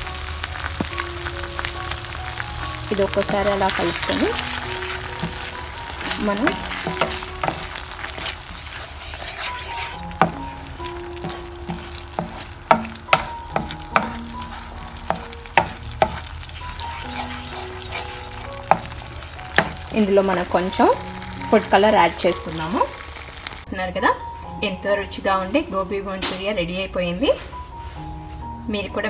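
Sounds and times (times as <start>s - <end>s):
sauce bubbling in frying pan: 0.0s - 23.7s
wooden spatula scraping pan: 2.9s - 20.7s.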